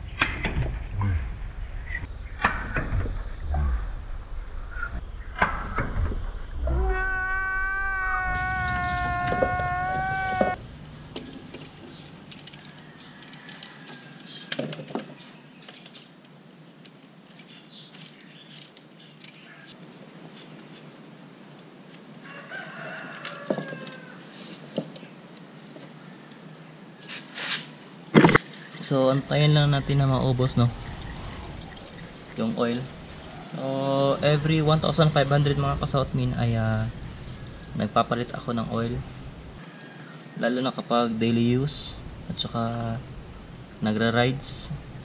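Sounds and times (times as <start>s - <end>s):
comedy wailing cry effect: 6.6s - 10.6s
rooster crowing: 6.7s - 10.6s, 12.5s - 14.5s, 22.2s - 24.4s, 29.8s - 33.6s, 39.6s - 40.4s.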